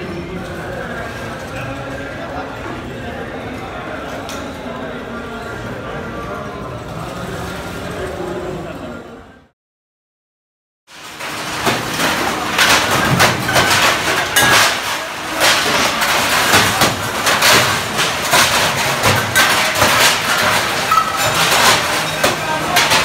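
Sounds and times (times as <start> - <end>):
metal plates clattering: 10.9 - 23.0.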